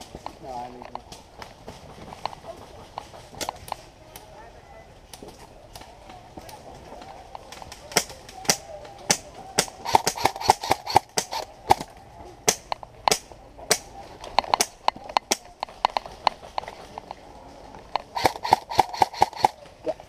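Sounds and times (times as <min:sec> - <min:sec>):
airsoft gunfire pops: 0:07.9 - 0:11.9, 0:12.5 - 0:16.1, 0:18.1 - 0:19.6.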